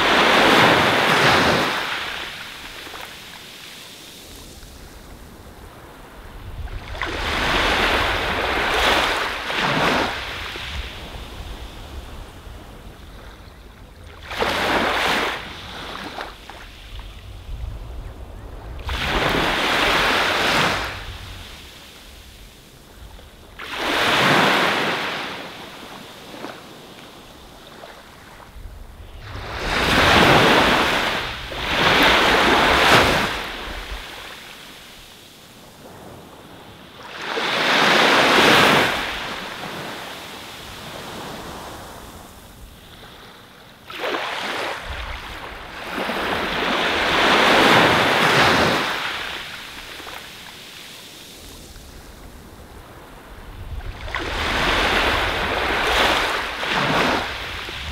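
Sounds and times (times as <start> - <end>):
waves breaking on beach: 0.0 - 57.9.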